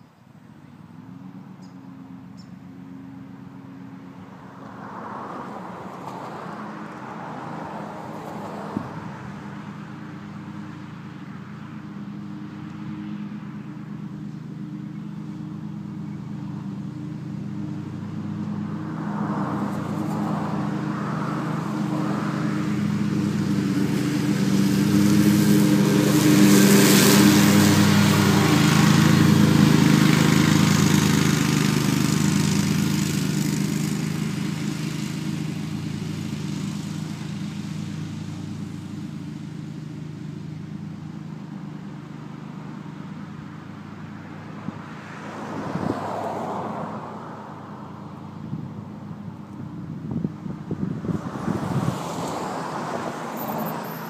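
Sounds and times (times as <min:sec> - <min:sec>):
ride-on mower engine running: 0:00.6 - 0:05.0, 0:08.0 - 0:45.2, 0:47.7 - 0:54.0.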